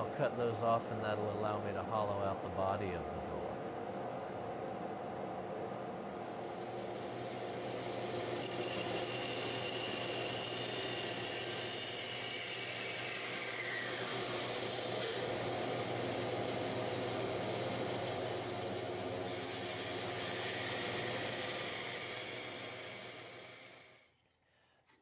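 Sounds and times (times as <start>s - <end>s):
band saw cutting wood: 6.5s - 24.2s.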